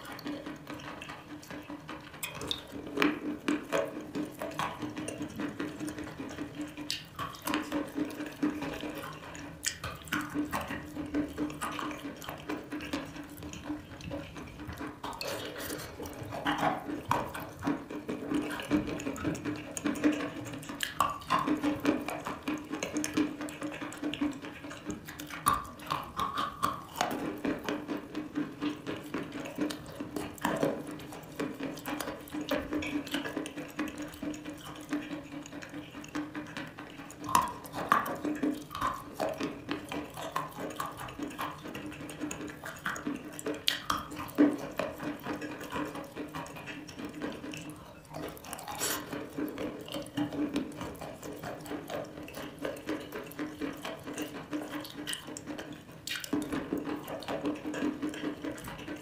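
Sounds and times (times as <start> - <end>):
wet chalk crunching and chewing: 0.0 - 59.0
squelchy mouth sounds: 15.0 - 16.9, 47.8 - 49.2.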